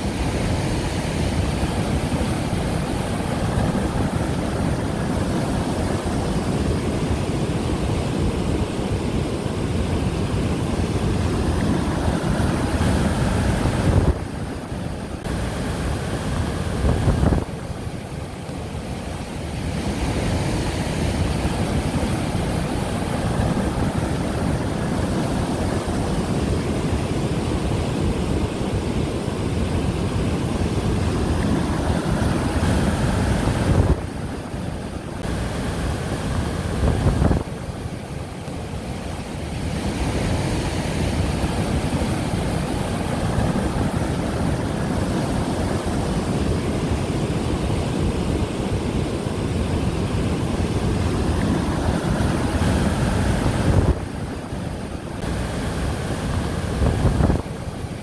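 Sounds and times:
river rushing over rocks: 0.0s - 58.0s.

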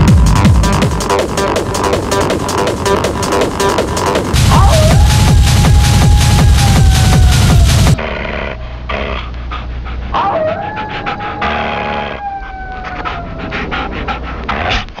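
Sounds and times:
dog howling: 4.3s - 8.1s, 10.1s - 14.9s
low hum and crackle: 4.3s - 15.0s.

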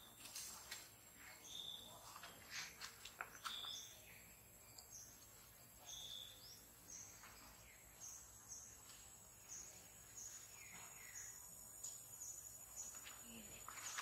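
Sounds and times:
insect chirping: 0.0s - 14.0s
high insect drone: 4.0s - 14.0s.

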